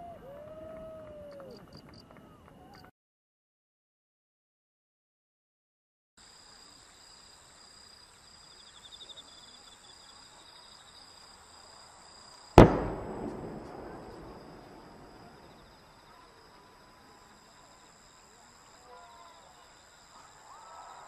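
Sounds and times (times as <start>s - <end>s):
firework bang with echo: 12.6s - 15.6s.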